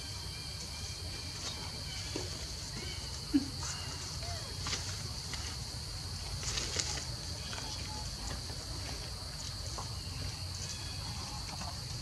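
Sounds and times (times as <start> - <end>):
faint rustles and ticks: 0.6 - 12.0.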